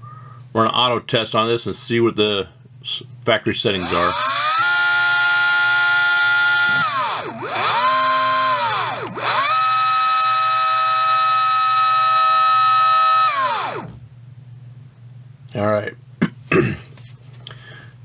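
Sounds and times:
electric motor whining: 0:03.8 - 0:14.0.

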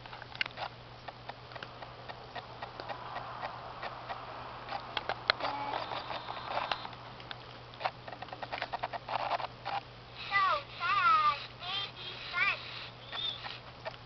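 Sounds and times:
short steady tone: 0:05.4 - 0:06.8.

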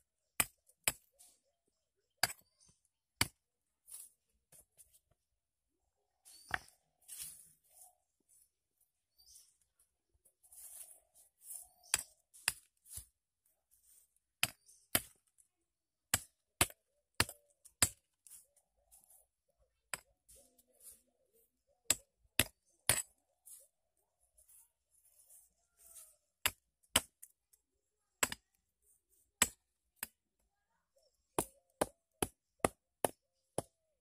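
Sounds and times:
stone tool chopping tree trunk: 0:11.8 - 0:13.1, 0:14.4 - 0:15.2, 0:16.1 - 0:18.1, 0:21.9 - 0:23.2, 0:26.4 - 0:27.3, 0:29.4 - 0:30.2, 0:31.3 - 0:33.8.

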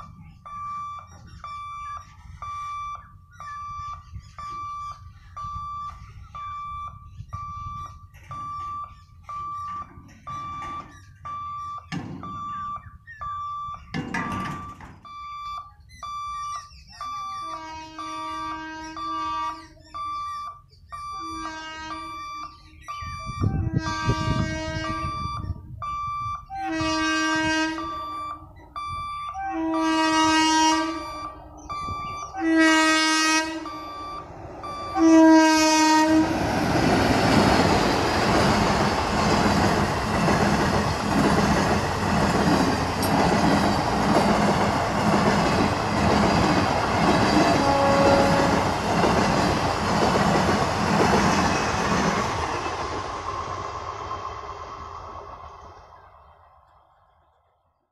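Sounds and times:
wheels clattering over rail joints: 0:13.8 - 0:15.2, 0:36.1 - 0:54.1
train horn blasts: 0:17.5 - 0:19.7, 0:21.2 - 0:22.2, 0:23.4 - 0:25.3, 0:26.5 - 0:28.2, 0:29.3 - 0:31.4, 0:32.4 - 0:36.4, 0:47.4 - 0:48.8
train rushing past: 0:23.3 - 0:57.4.

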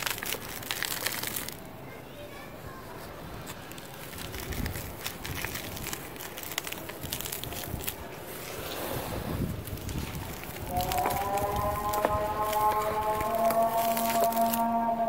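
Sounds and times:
cement lumps crushed by hand: 0:00.0 - 0:01.8, 0:03.4 - 0:15.0
grit pouring into plastic tub: 0:03.8 - 0:14.8.

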